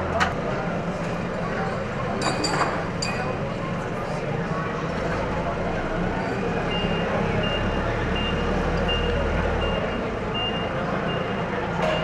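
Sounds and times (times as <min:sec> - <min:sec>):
forklift reversing alarm beeping: 0:06.6 - 0:12.0.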